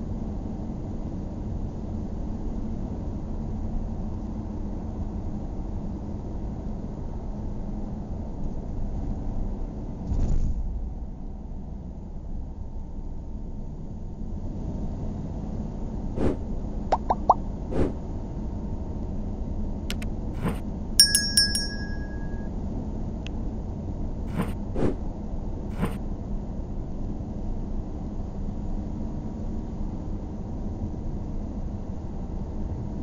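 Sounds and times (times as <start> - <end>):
short bell-like chime: 21.0 - 22.5.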